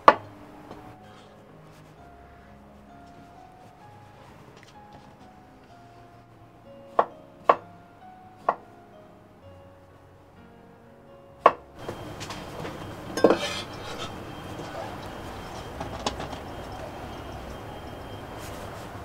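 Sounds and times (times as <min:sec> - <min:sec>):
noisy rustle: 0:11.8 - 0:19.0.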